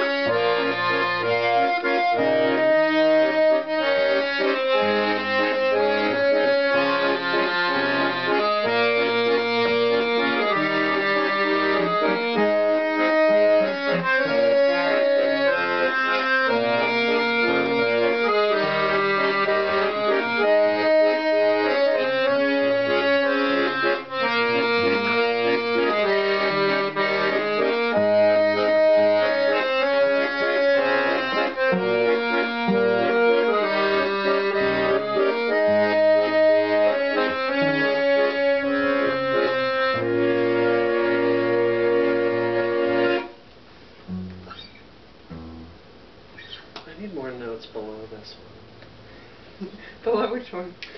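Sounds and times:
accordion chords: 0:00.0 - 0:50.9
strummed acoustic guitar: 0:44.1 - 0:45.8.

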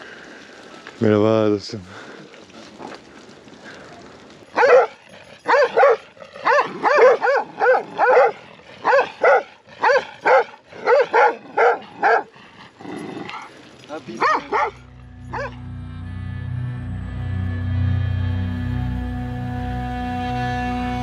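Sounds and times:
large dogs barking: 0:04.5 - 0:15.6.

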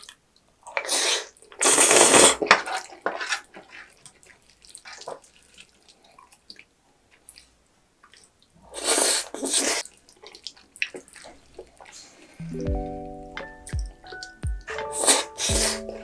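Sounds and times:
wet slurp and chew: 0:00.7 - 0:12.3.

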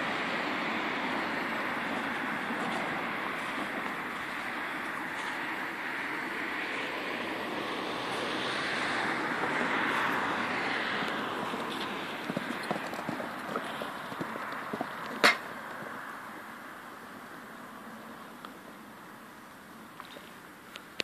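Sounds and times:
hoofbeats on sand: 0:11.0 - 0:16.0.

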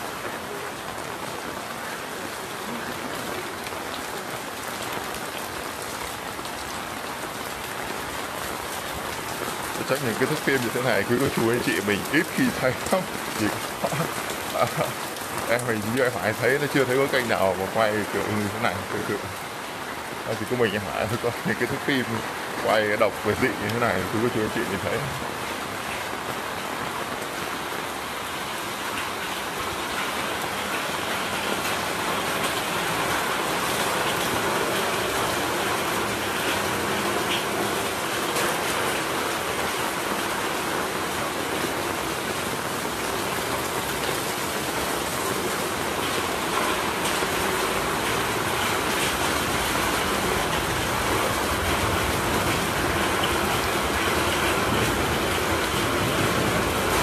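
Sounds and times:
rain splashing on pavement: 0:00.0 - 0:57.0.

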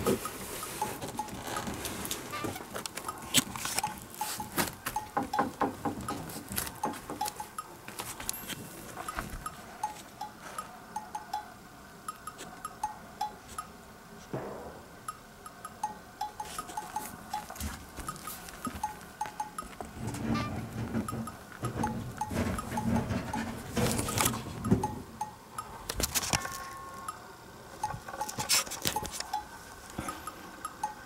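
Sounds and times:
sharp clicks and knocks: 0:00.0 - 0:10.3, 0:14.3 - 0:27.2.

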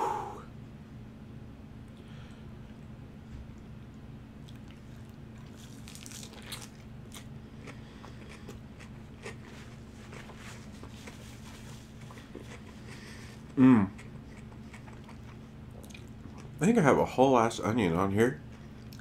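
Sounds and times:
crunching lettuce while chewing: 0:04.4 - 0:16.6, 0:18.4 - 0:19.0.

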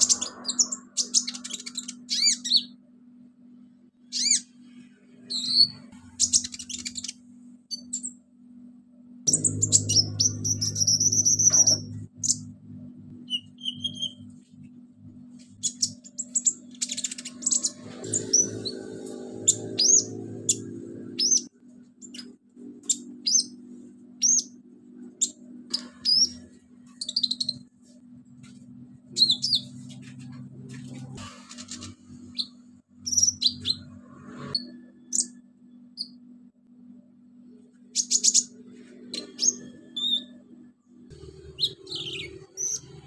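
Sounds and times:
bird chirping and whistling: 0:00.0 - 0:02.8, 0:04.1 - 0:04.5, 0:05.3 - 0:08.2, 0:09.3 - 0:12.6, 0:13.2 - 0:14.2, 0:15.6 - 0:23.6, 0:24.2 - 0:24.6, 0:25.2 - 0:26.4, 0:27.0 - 0:27.6, 0:29.2 - 0:29.7, 0:31.7 - 0:35.4, 0:38.0 - 0:38.5, 0:39.1 - 0:40.4, 0:41.6 - 0:43.0
steady low hum: 0:00.0 - 0:43.0.

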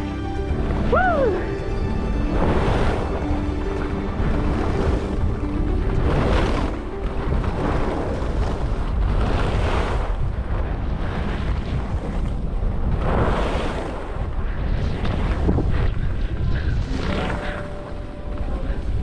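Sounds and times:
wind buffeting microphone: 0:00.0 - 0:19.0
skis swishing on snow: 0:11.0 - 0:18.9.

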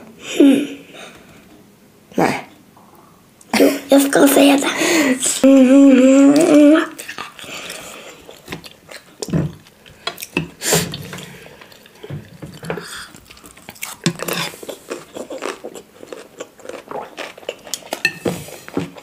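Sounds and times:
wet chewing and mouth clicks: 0:06.3 - 0:19.0.

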